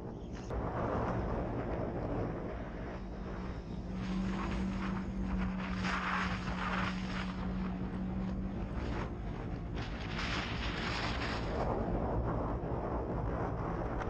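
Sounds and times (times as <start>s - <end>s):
engine droning: 0.0s - 14.0s
wind rushing over microphone: 0.0s - 14.0s.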